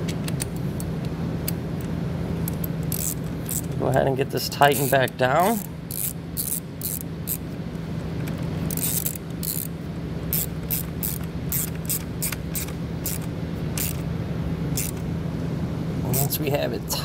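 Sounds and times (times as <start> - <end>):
ratchet pawl clicking: 2.4 - 3.8, 4.6 - 7.4, 8.7 - 14.0, 14.8 - 15.0.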